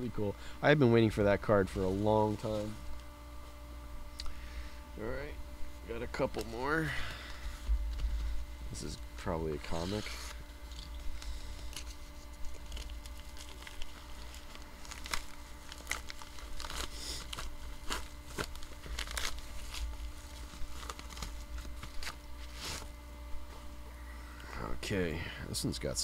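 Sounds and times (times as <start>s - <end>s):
envelope crinkling and rustling: 9.5s - 23.0s
envelope tearing: 9.5s - 23.0s.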